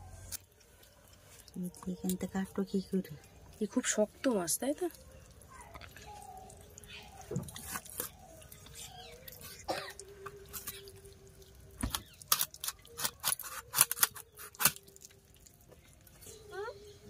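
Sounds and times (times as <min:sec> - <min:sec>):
blade cutting fish skin and bone: 0:11.8 - 0:14.9.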